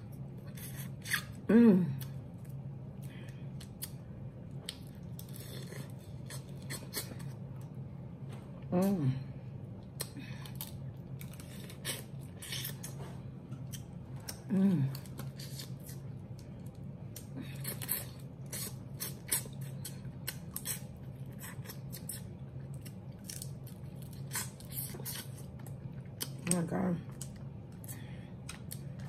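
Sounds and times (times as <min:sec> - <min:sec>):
person humming: 0:01.5 - 0:02.0, 0:14.5 - 0:15.0
wet chewing: 0:03.2 - 0:07.7, 0:09.8 - 0:29.0.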